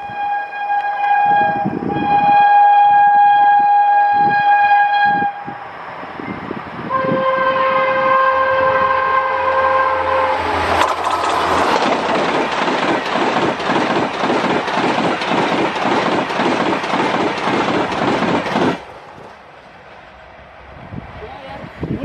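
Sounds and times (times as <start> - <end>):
train air horn blasts: 0.0 - 5.6, 6.8 - 10.8
train rushing past: 0.0 - 22.0.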